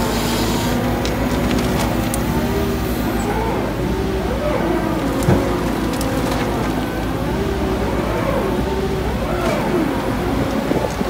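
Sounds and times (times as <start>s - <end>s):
shredder and excavator engine drone: 0.0s - 11.0s
wood cracking: 0.7s - 2.4s, 5.0s - 7.3s.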